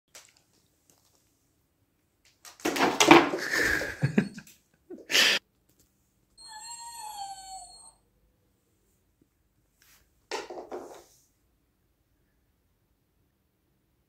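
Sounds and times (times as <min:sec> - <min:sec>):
puppy whining: 0:06.4 - 0:08.0.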